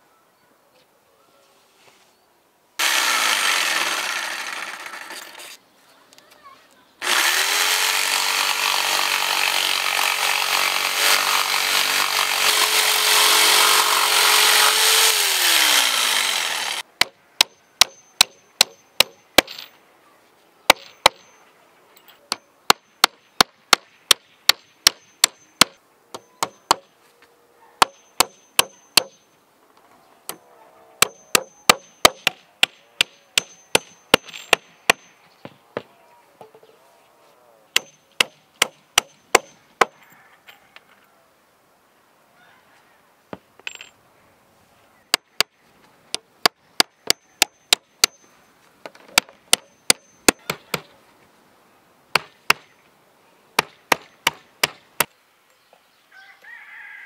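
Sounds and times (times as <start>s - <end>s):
power saw cutting wood: 2.8s - 5.6s, 7.0s - 16.8s
chopping strikes on wood: 26.4s - 26.9s, 52.2s - 52.7s, 53.6s - 55.1s.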